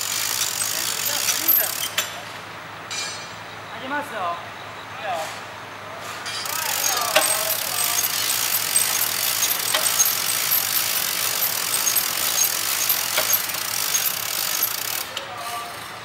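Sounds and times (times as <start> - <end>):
work vehicle engines running: 0.0 - 16.0
sharp metallic clicks: 0.2 - 2.2, 6.4 - 15.2.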